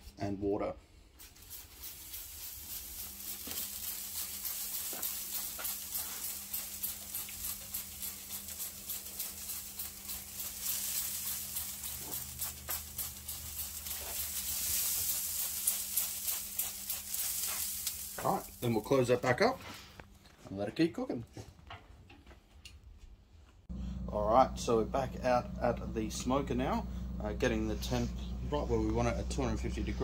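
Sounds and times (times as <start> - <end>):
spray bottle squirts: 1.2 - 18.6.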